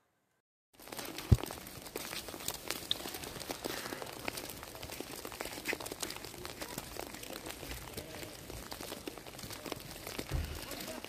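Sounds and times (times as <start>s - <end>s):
footsteps crunching in wet snow: 0.8s - 11.0s.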